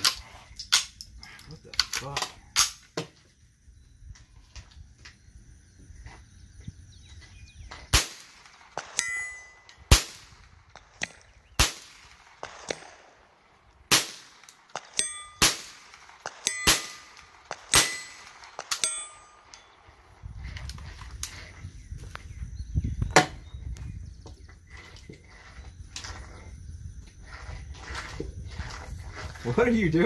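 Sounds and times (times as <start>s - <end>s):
bullets hitting steel gong: 16.4s - 19.5s.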